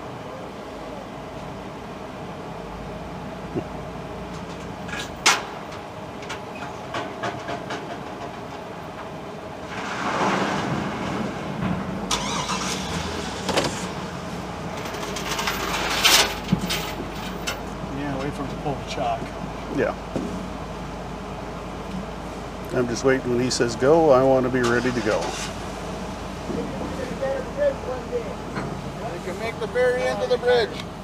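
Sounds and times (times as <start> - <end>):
steady low hum: 0.0 - 31.0
car engine starting and running: 11.9 - 16.5.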